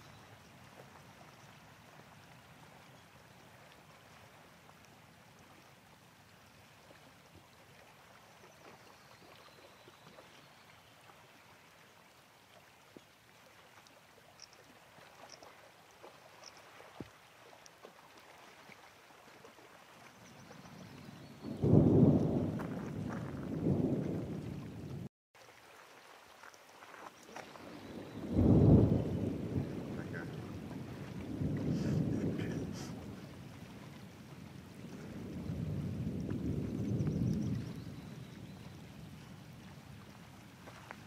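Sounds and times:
water lapping on stony shore: 0.0 - 41.0
faint ticks: 13.8 - 18.0.

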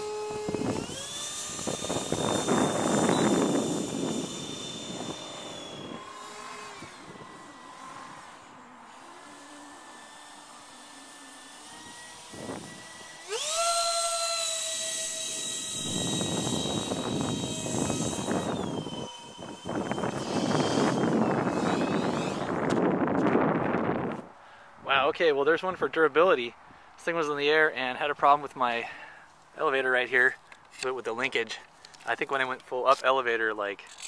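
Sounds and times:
electric ducted fans whining: 0.0 - 34.0
wind rumble on microphone: 0.3 - 8.3, 15.3 - 24.3.

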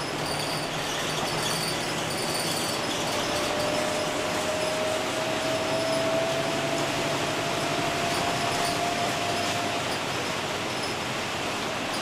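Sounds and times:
rain and road noise: 0.1 - 12.0
thin rising whine: 3.0 - 10.0.

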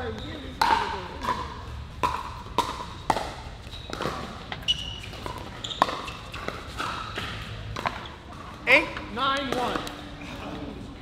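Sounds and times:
ball bouncing on court: 0.0 - 10.0.

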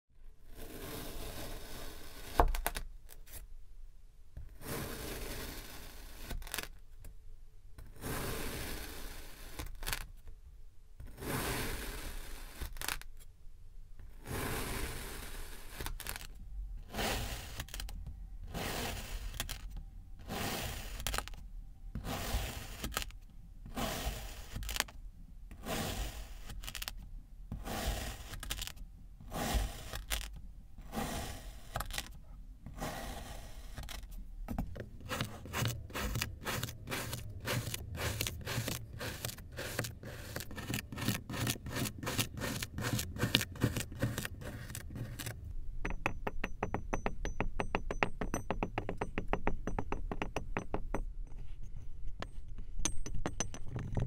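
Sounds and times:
blade slicing kinetic sand: 0.5 - 2.7, 4.6 - 6.7, 8.0 - 10.1, 11.0 - 13.0, 14.2 - 21.4, 22.0 - 24.9, 25.5 - 27.0, 27.6 - 32.1, 32.7 - 34.1, 34.9 - 45.4.

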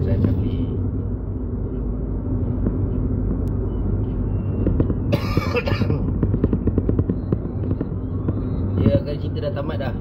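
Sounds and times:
car cabin rumble: 0.0 - 10.0
cough: 5.1 - 6.1.

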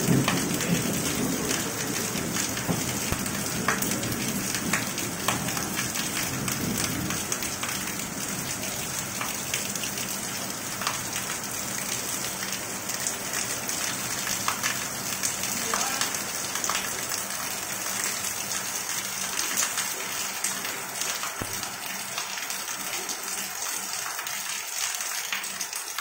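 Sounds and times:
low thunder rumble: 0.0 - 7.3
drips and splashes: 0.0 - 26.0
heavy rain falling: 0.0 - 26.0.

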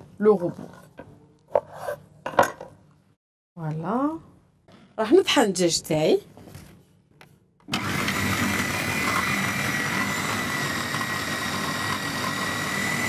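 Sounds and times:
food processor motor whining: 7.7 - 13.0.

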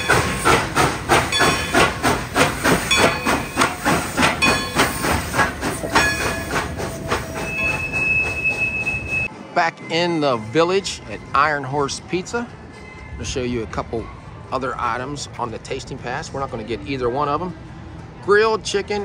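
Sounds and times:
steam hissing: 0.0 - 9.3
steam locomotive chuffing: 0.0 - 9.3
steady high tone: 2.9 - 11.8.

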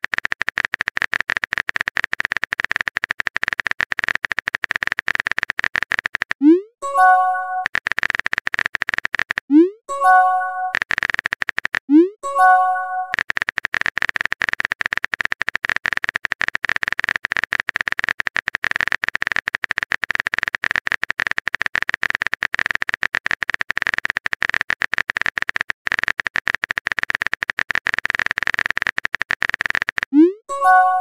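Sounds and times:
keyboard typing clicks: 0.0 - 31.0
message chime: 6.8 - 7.6, 9.9 - 10.8, 12.2 - 13.1, 30.5 - 31.0.

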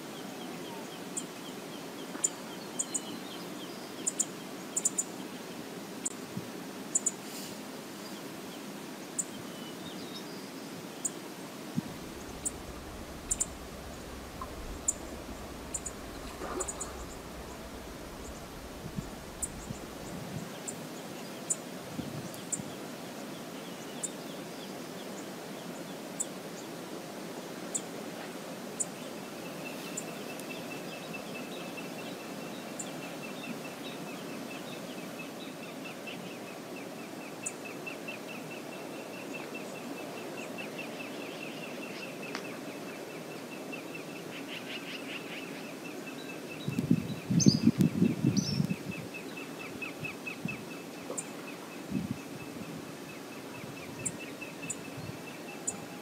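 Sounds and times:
wind: 0.0 - 56.0
small birds chirping and trilling: 0.2 - 5.4, 11.8 - 21.6, 29.3 - 56.0
lake waves: 11.6 - 21.2
wind buffeting microphone: 11.7 - 20.8, 46.6 - 49.2, 50.0 - 50.7, 51.8 - 53.0.

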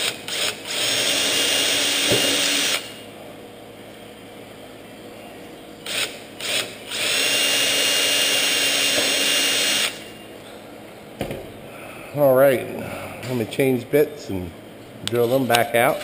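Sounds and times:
cordless drill whining: 0.0 - 3.0, 5.9 - 10.1.

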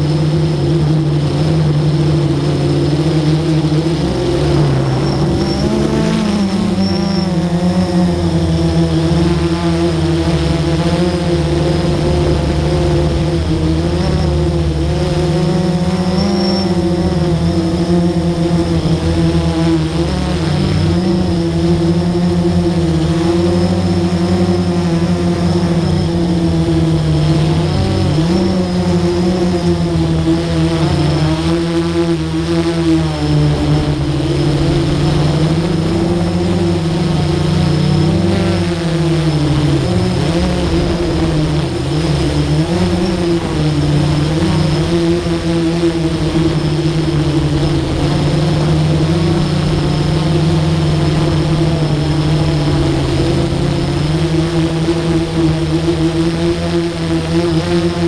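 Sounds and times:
drone motors and propellers humming: 0.0 - 58.0.

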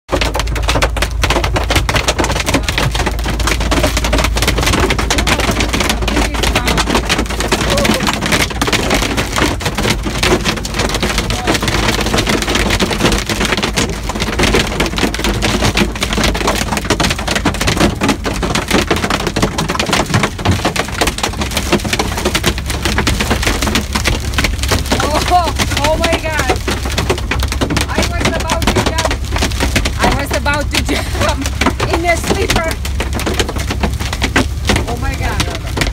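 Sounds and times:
hail and rain on truck roof: 0.1 - 35.9
truck low rumble: 0.1 - 35.9.

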